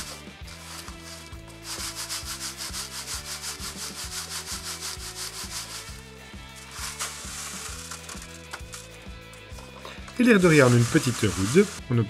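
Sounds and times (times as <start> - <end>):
grit shaken in wire sieve: 0.0 - 11.9.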